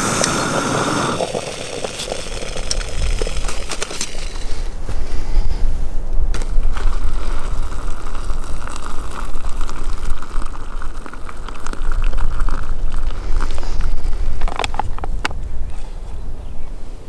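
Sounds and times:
wind rumble on microphone: 0.0 - 17.0
water pouring into pouch: 0.5 - 4.7, 6.4 - 15.0.

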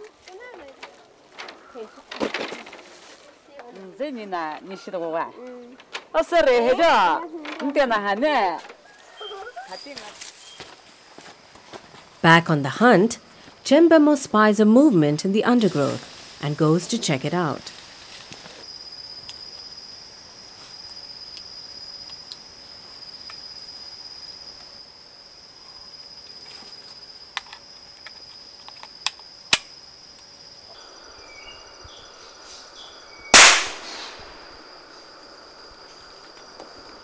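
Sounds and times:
high insect drone: 4.0 - 37.0
loud gunshot: 33.4 - 34.5
sharp clicks: 33.4 - 34.5.

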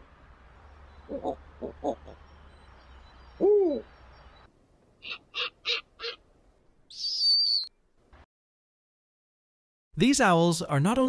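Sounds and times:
owl hooting: 1.0 - 2.2, 3.3 - 4.0, 5.0 - 6.2, 6.9 - 7.7
owl screech: 5.0 - 6.2, 6.9 - 7.7
owl barking notes: 5.0 - 6.3, 6.9 - 7.7.

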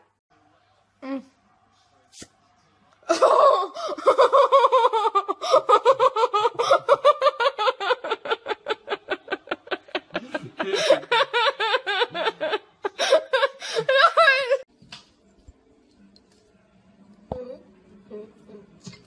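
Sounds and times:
young woman laughing hard: 3.1 - 14.6.

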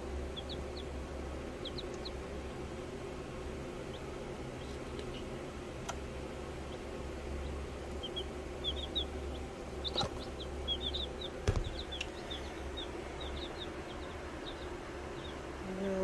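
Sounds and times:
chicks peeping: 0.0 - 16.0
steady low hum: 0.0 - 16.0
brief knocks: 11.4 - 11.8.

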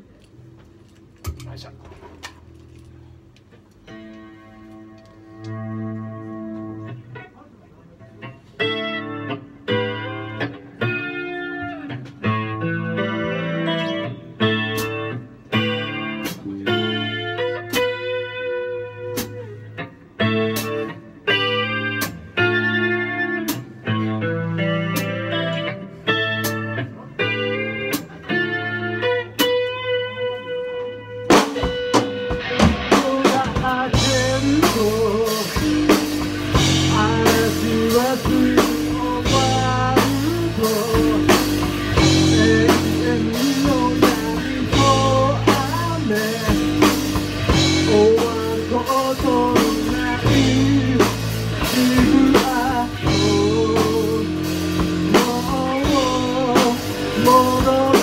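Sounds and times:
drums: 0.0 - 7.3, 8.2 - 58.0
bass guitar: 0.0 - 58.0
electric guitar ringing: 8.6 - 58.0
man singing: 32.8 - 58.0.

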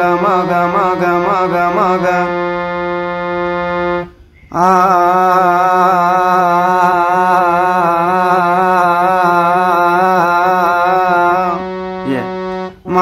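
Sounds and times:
harmonium held note: 0.0 - 13.0
man singing sustained vowel: 0.0 - 13.0.

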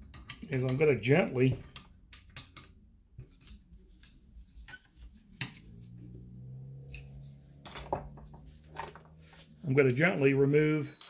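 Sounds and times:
low steady hum: 3.0 - 10.6.

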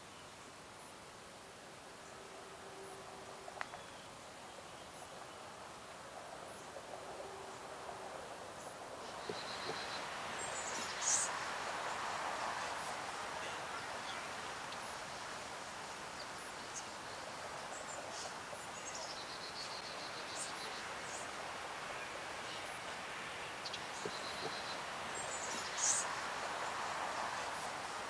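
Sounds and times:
steady hiss: 0.0 - 28.0
small birds calling: 9.0 - 15.0, 16.1 - 27.8.

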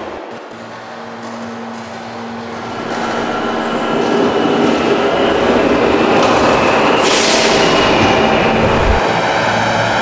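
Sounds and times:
subway train rumble: 0.0 - 10.0
traction motor whine: 2.5 - 9.0.

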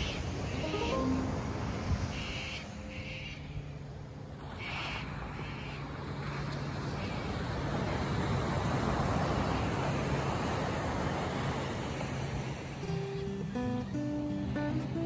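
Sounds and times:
short high chirps: 0.6 - 1.8
ocean surf breaking on beach: 4.4 - 15.0.

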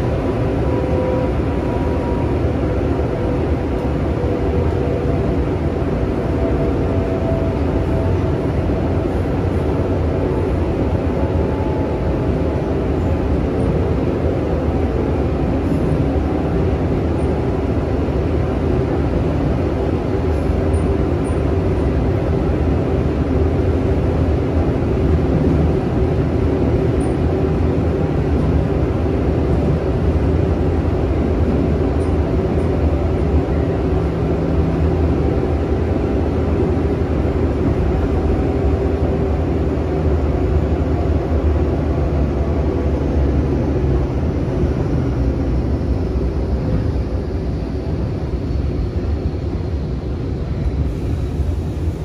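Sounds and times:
wheels rumbling on rail: 0.0 - 52.0.

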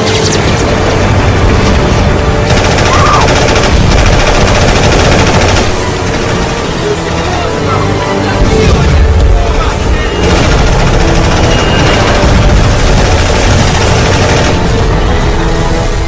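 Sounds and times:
film music with low notes: 0.0 - 16.0
rapid machine-gun fire: 0.1 - 6.6, 10.1 - 14.8.

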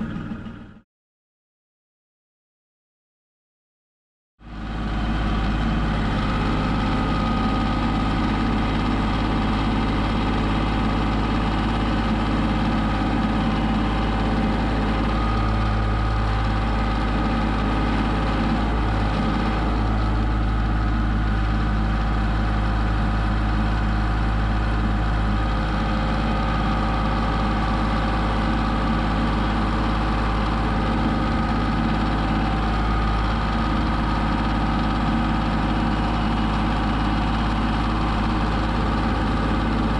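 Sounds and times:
tractor engine running: 0.0 - 0.8, 4.4 - 39.9.

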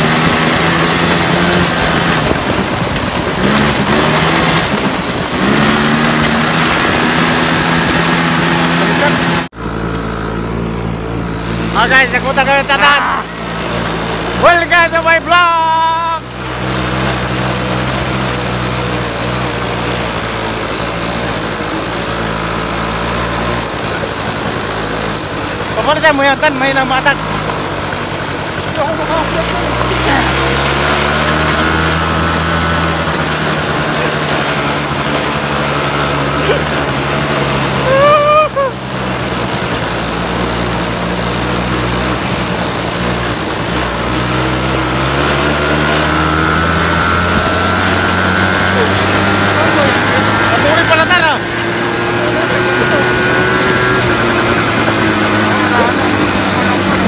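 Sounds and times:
small engine running: 0.0 - 57.0
wind and ride noise: 0.0 - 57.0.

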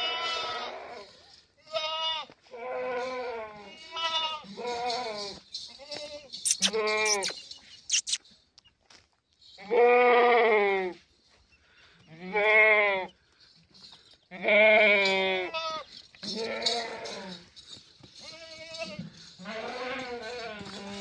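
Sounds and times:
sharp clicks: 6.5 - 8.2.

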